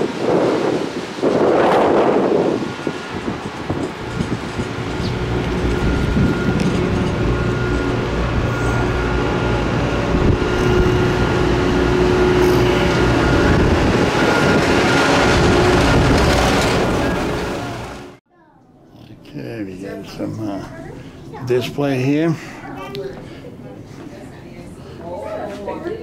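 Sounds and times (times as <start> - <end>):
chairlift haul rope rumbling: 0.0 - 18.2
faint high whine: 4.9 - 14.6.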